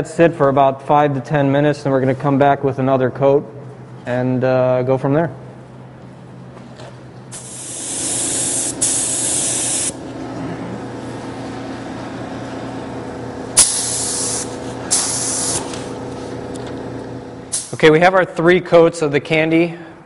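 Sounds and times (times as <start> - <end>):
spray gun hissing: 7.3 - 10.0, 13.6 - 15.7
low hum: 9.9 - 13.8.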